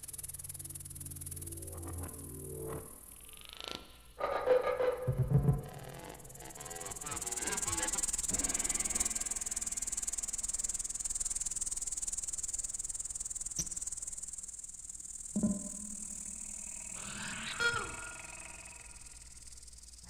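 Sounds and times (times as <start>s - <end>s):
steady high-pitched hiss: 0.0s - 4.2s, 5.8s - 20.0s
faint wavering tones: 12.6s - 20.0s
sharp click: 13.5s - 13.9s.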